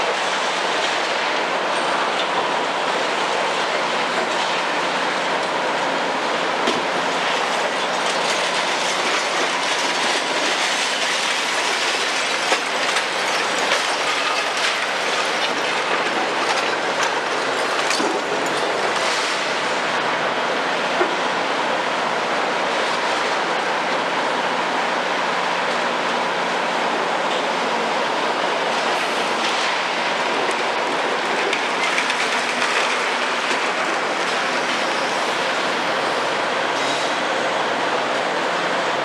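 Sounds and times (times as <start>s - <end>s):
excavator engine: 0.0s - 39.0s
concrete cracking and rubble falling: 7.3s - 19.5s, 30.4s - 35.0s.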